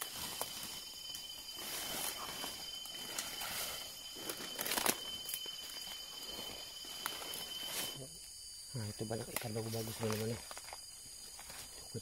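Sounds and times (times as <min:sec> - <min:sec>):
footsteps through undergrowth: 0:00.0 - 0:08.0
insects whining: 0:00.0 - 0:12.0.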